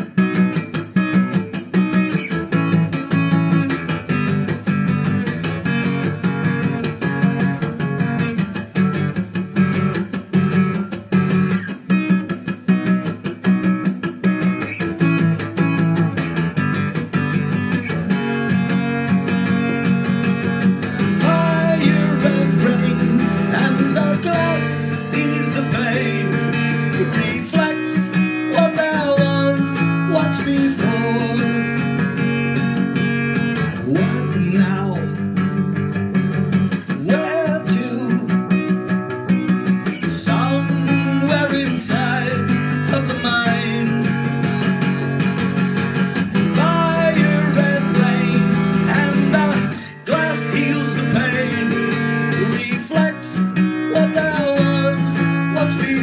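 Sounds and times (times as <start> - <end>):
acoustic guitar strumming: 0.0 - 56.0
man singing: 20.8 - 32.9, 33.6 - 35.6, 36.8 - 39.0, 39.8 - 44.3, 46.3 - 56.0.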